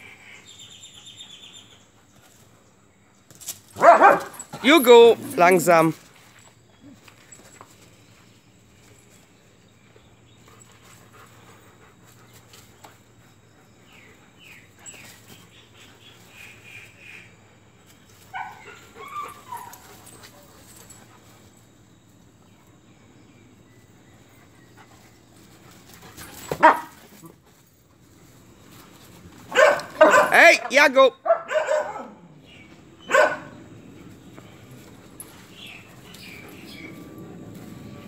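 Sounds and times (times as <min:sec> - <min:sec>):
dog barking: 0:03.8 - 0:04.4, 0:26.6 - 0:26.9, 0:29.5 - 0:30.6, 0:31.2 - 0:32.2, 0:33.1 - 0:33.5
dogs whining and yipping: 0:18.2 - 0:21.3, 0:34.5 - 0:38.0.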